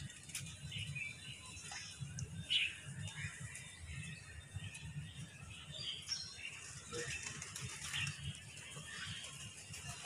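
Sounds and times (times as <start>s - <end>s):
pigeon wing flutters: 6.6s - 8.2s.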